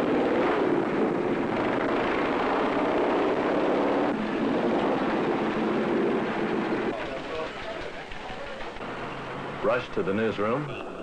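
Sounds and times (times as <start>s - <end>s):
motorcycle engine at speed: 0.0s - 7.0s.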